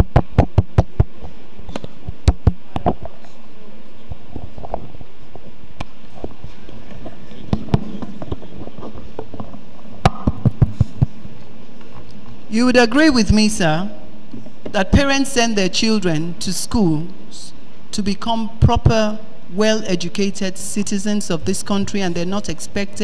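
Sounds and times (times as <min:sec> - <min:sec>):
microphone line crackling pops: 0:00.0 - 0:03.3, 0:07.3 - 0:11.3.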